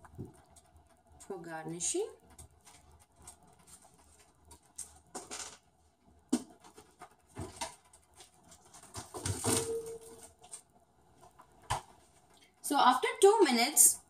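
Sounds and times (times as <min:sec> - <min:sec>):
thick gravy simmering with pops: 0:00.0 - 0:08.6, 0:10.4 - 0:12.6.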